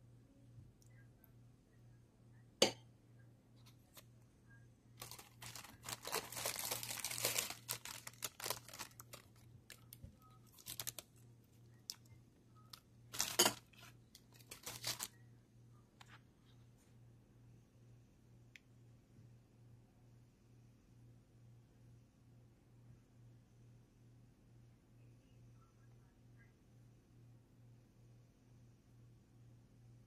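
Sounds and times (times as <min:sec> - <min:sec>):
plastic wrapper crinkling and tearing: 0:05.0 - 0:11.2, 0:13.1 - 0:15.2.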